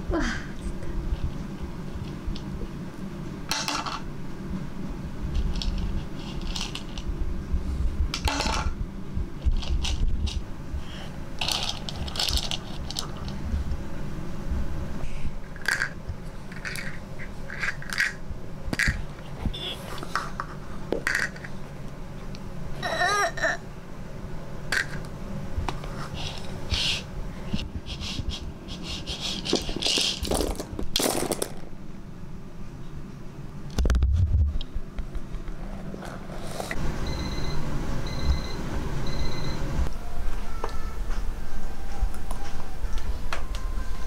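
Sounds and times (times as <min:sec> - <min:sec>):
dry pasta rattling in wooden bowl: 0:11.4 - 0:13.4.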